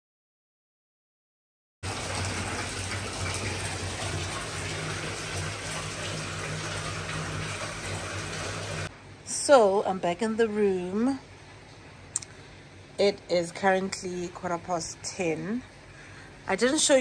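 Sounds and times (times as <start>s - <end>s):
water running into bathtub: 1.8s - 8.9s.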